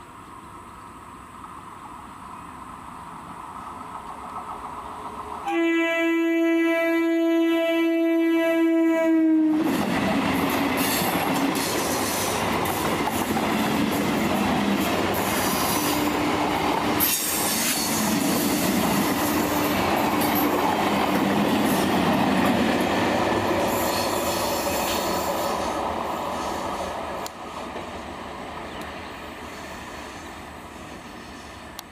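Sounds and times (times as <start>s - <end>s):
wheel and rail noise: 0.0s - 5.8s, 9.5s - 31.9s
clickety-clack over rail joints: 3.6s - 5.6s, 9.6s - 29.1s
train horn: 5.4s - 9.7s.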